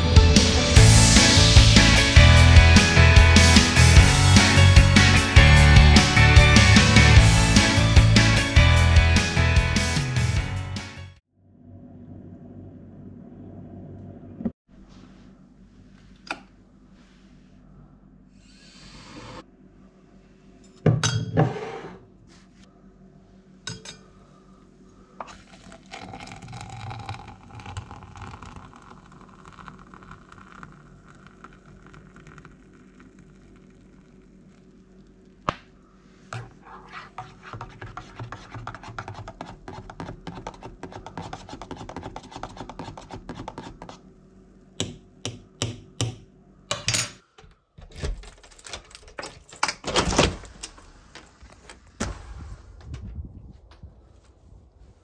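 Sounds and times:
water pouring into metal cup: 25.2 - 34.6
spoon stirring in metal cup: 36.4 - 44.0.

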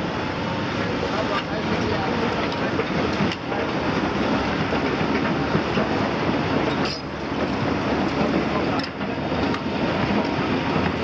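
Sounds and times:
track chains clattering: 6.6 - 10.9.

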